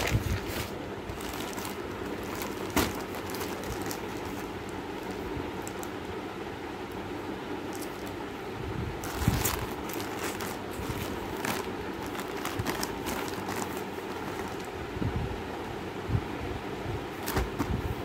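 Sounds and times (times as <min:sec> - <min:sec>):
plastic packaging crinkling: 0:00.0 - 0:06.0, 0:07.6 - 0:08.2, 0:09.0 - 0:14.8.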